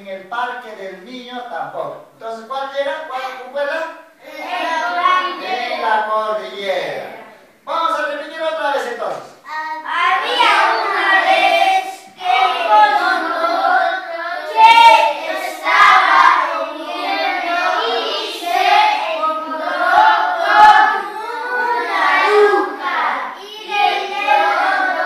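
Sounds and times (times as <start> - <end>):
children chanting in unison: 4.2 - 6.1, 9.5 - 25.0.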